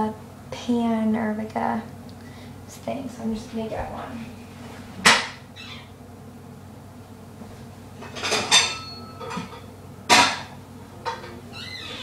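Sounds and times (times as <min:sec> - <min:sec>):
metal pots and pans clanking: 0:08.0 - 0:11.4.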